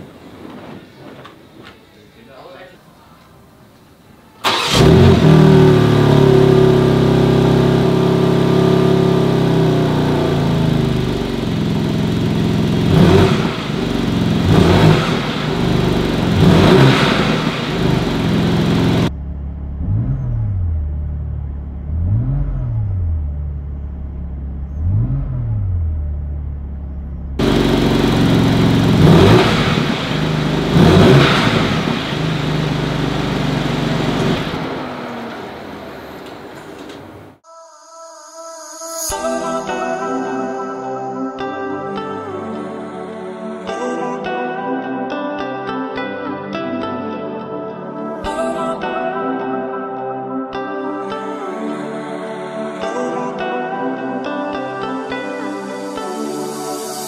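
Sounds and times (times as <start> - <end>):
car engine idling: 4.4 - 37.4
engine revving: 4.4 - 37.4.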